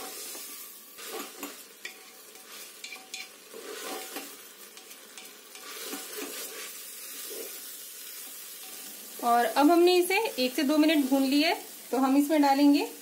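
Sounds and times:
grains sizzling in fat: 0.0s - 13.0s
wooden spatula scraping pot: 1.0s - 7.6s.

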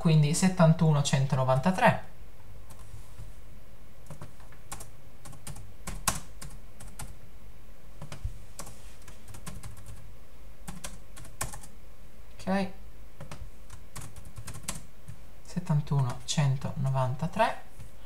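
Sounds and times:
computer keyboard typing: 4.0s - 7.2s, 8.0s - 10.0s, 10.7s - 11.7s, 13.2s - 15.2s, 15.9s - 17.0s.

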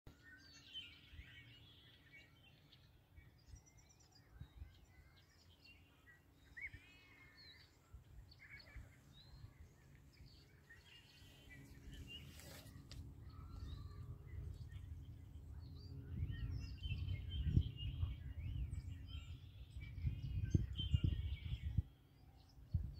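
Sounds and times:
small birds chirping: 0.1s - 22.9s.

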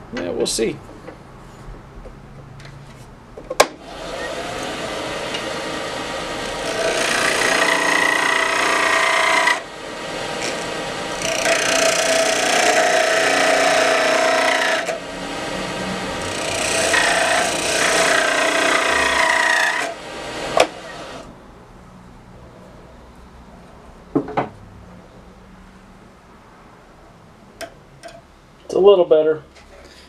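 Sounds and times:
wood lathe turning tool cutting: 3.8s - 21.3s.

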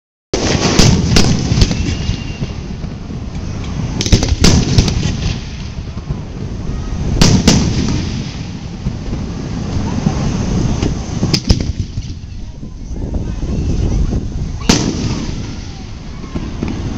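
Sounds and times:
firework shells bursting: 0.4s - 6.2s, 7.1s - 12.5s
background noise: 0.4s - 16.9s.

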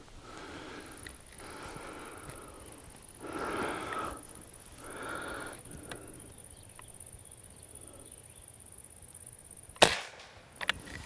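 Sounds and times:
faint ticks: 0.0s - 8.1s
insects chirring: 0.0s - 11.0s.

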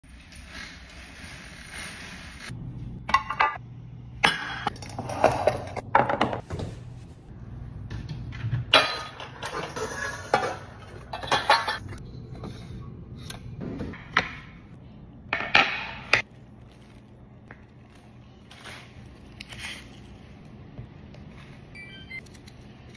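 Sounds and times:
dishes clinking and scraping: 8.3s - 12.8s.

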